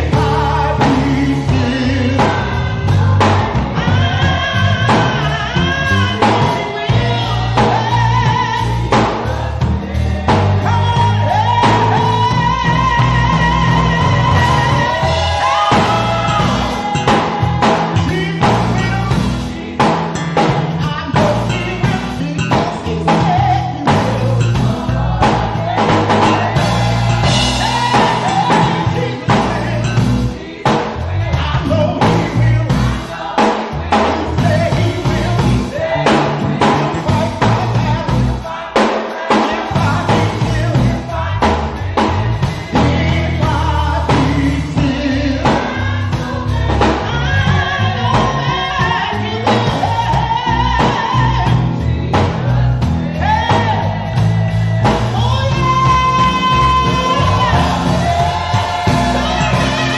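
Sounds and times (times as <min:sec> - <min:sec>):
bass: 0:00.0 - 0:59.9
drum kit beat: 0:00.0 - 0:59.9
gospel band music: 0:00.0 - 0:59.9
singing: 0:20.8 - 0:59.9.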